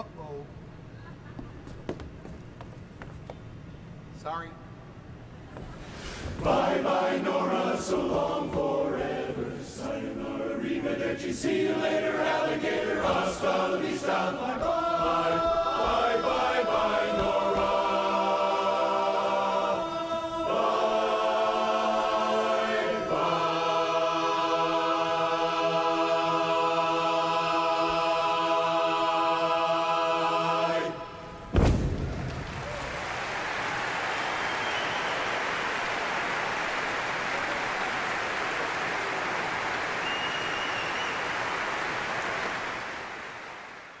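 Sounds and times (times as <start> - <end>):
men's chorus singing a cappella: 6.3 - 31.3
audience applauding: 32.3 - 44.0.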